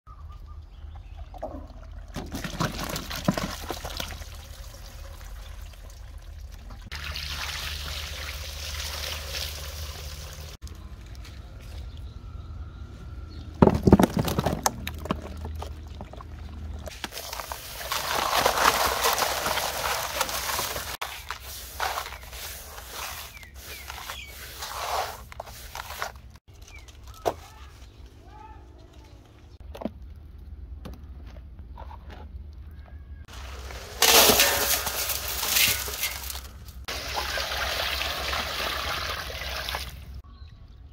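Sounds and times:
fish rubbed in coarse salt: 0:17.3 - 0:26.2.

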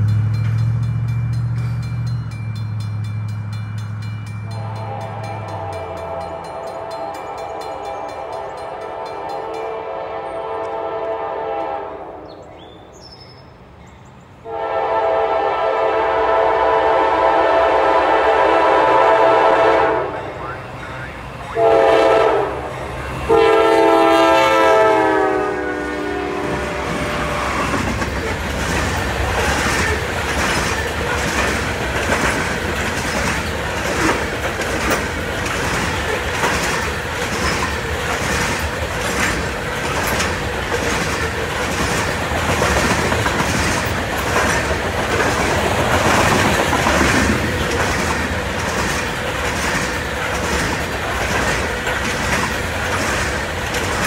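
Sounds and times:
locomotive air horn: 0:04.5 - 0:12.2, 0:14.4 - 0:28.0
train wheels clicking over rail joints: 0:26.4 - 0:54.0.

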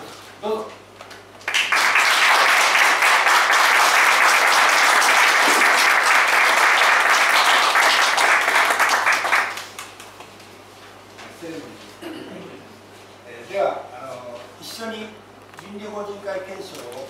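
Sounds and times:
audience applauding: 0:01.4 - 0:10.1.

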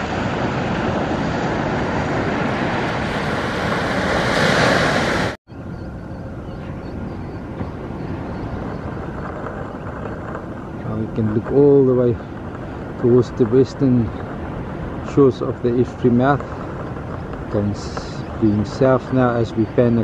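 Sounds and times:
surf breaking on beach: 0:00.0 - 0:05.4
wind on microphone: 0:00.0 - 0:20.0.

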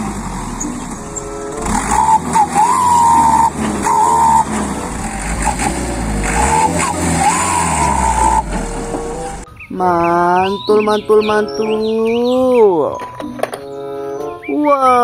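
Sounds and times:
high squeals: 0:00.0 - 0:09.8
truck diesel engine rumbling: 0:00.0 - 0:14.5.

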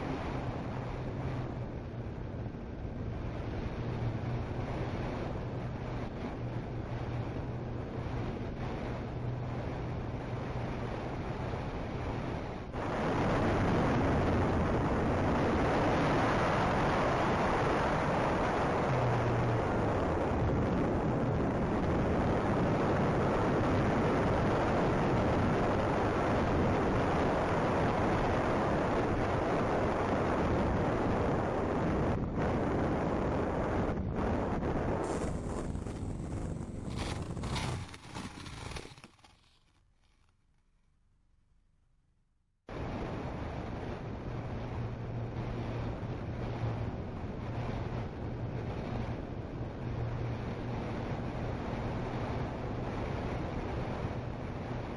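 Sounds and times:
propellers humming: 0:00.0 - 0:26.0, 0:35.0 - 0:39.1
wind buffeting microphone: 0:00.0 - 0:39.6.

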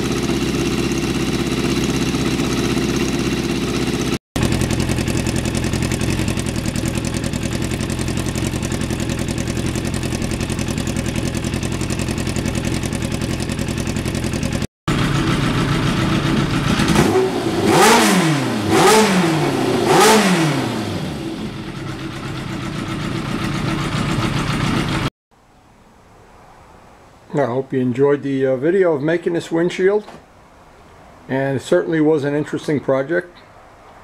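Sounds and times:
motorcycle engine idling: 0:00.0 - 0:25.1
motorcycle throttle blips: 0:00.0 - 0:25.1.

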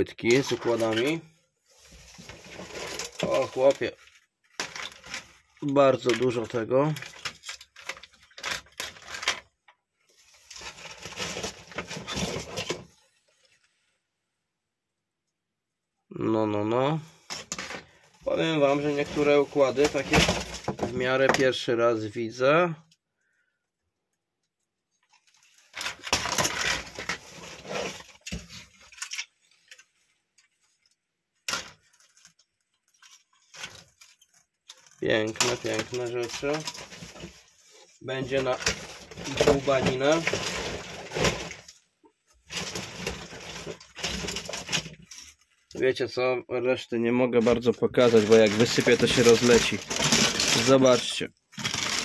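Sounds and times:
circuit boards clattering: 0:47.5 - 0:52.0.

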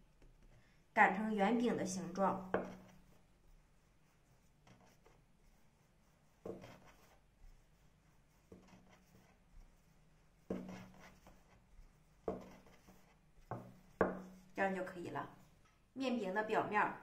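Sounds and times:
rolling pin on wooden board: 0:02.3 - 0:03.1, 0:04.2 - 0:14.6.

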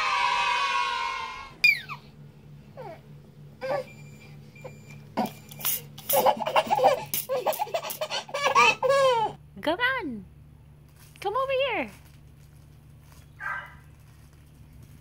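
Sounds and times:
baby laughing: 0:06.0 - 0:09.4.

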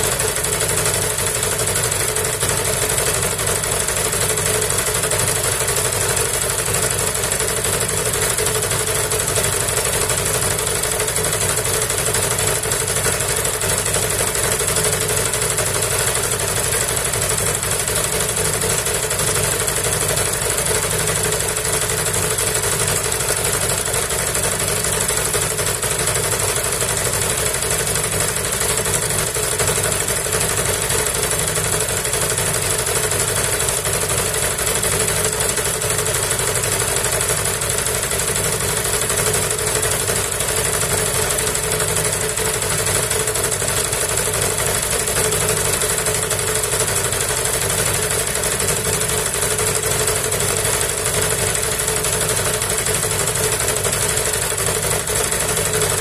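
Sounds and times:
small petrol generator engine droning: 0:00.0 - 0:56.0.

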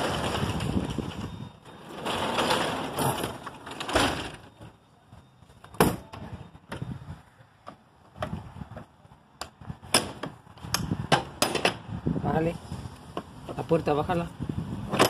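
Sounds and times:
metal gate rustling and clattering: 0:00.0 - 0:04.6.

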